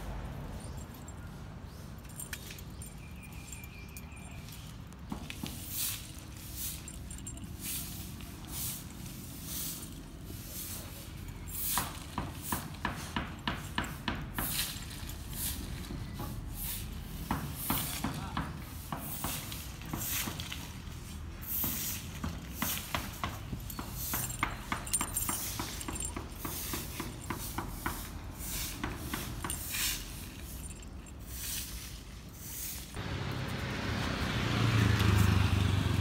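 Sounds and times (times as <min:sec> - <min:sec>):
soft rustles: 0:19.5 - 0:33.0.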